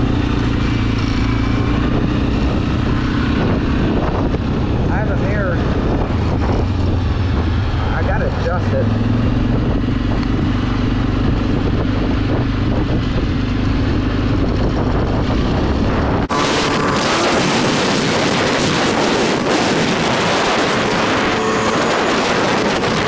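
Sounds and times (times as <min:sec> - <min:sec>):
atv engine running: 0:00.0 - 0:23.0
wind rushing over microphone: 0:00.0 - 0:23.0.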